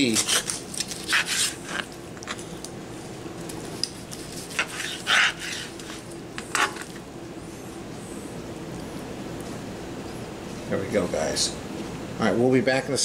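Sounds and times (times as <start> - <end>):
knife scraping on cutting board: 0.0 - 1.9, 4.0 - 6.9.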